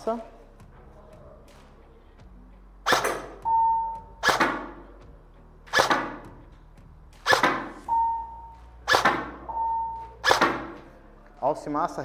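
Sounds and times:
airsoft rifle shots: 2.9s - 3.4s, 4.2s - 4.8s, 5.7s - 6.3s, 7.2s - 7.9s, 8.8s - 9.5s, 10.2s - 10.8s
electronic target beep: 2.9s - 4.3s, 7.8s - 8.6s, 9.4s - 10.4s.

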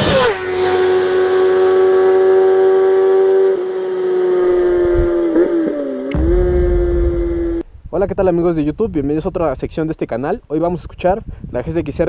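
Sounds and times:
vehicle engine at high revs: 0.0s - 7.6s.

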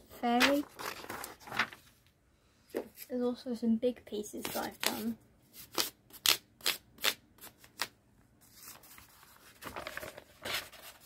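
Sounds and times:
paper rustling: 0.2s - 2.1s, 7.0s - 11.0s.

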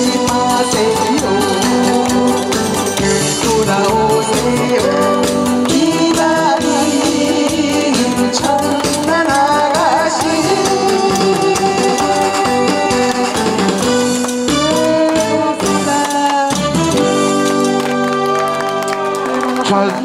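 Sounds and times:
instrumental backing music: 0.0s - 20.0s
woman singing into a microphone: 4.4s - 13.6s, 14.6s - 16.7s.

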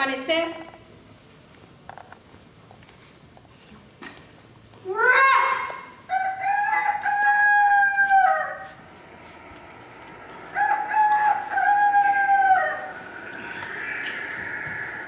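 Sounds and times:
rooster crowing: 6.1s - 8.9s, 10.2s - 15.0s.

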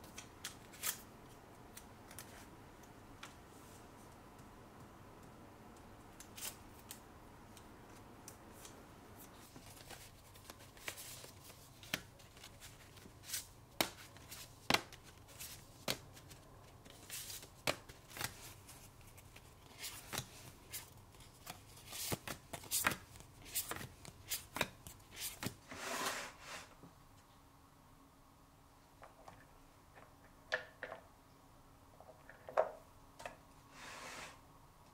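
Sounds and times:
paper rustling: 8.6s - 26.3s
wooden tray scraping out: 25.7s - 26.7s.

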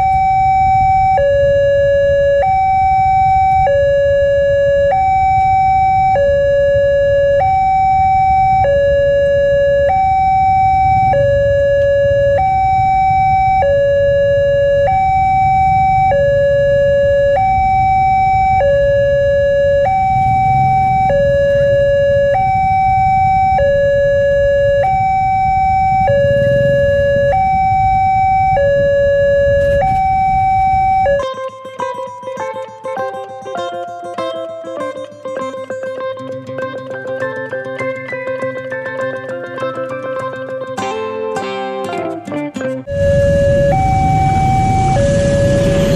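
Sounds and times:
two-tone level-crossing alarm: 0.0s - 31.3s, 42.9s - 45.9s.

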